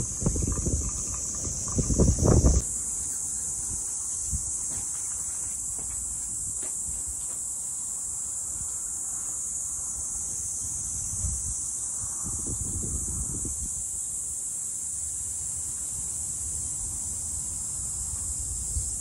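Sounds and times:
wind buffeting microphone: 0:00.0 - 0:02.7, 0:10.5 - 0:13.9
high-pitched insect chorus: 0:00.0 - 0:19.0.

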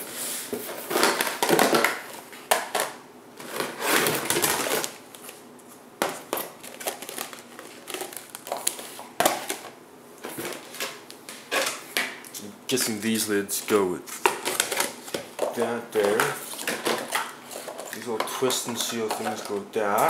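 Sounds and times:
plastic containers clattering: 0:00.6 - 0:05.4, 0:06.0 - 0:12.9, 0:14.1 - 0:20.0.

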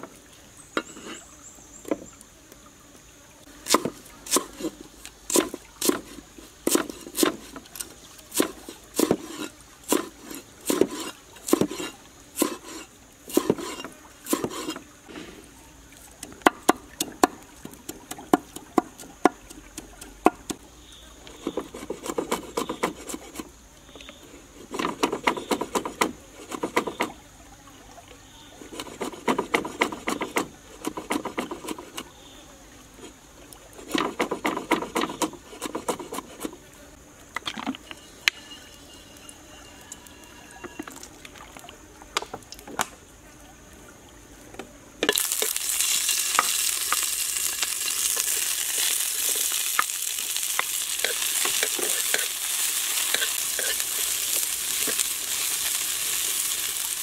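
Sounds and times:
cleaver chopping on wooden board: 0:03.7 - 0:04.6, 0:06.7 - 0:07.5, 0:08.3 - 0:10.1, 0:16.3 - 0:20.6.

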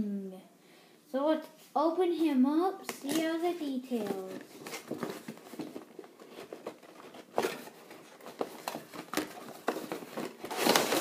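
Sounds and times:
packaging scraping rustle: 0:03.0 - 0:11.0.

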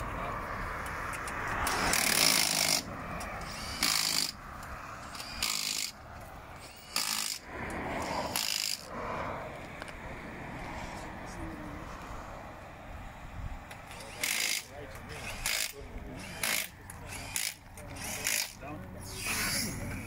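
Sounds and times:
impact wrench bursts: 0:01.6 - 0:04.4, 0:05.0 - 0:06.0, 0:06.6 - 0:07.4, 0:08.0 - 0:08.9, 0:13.9 - 0:18.6.

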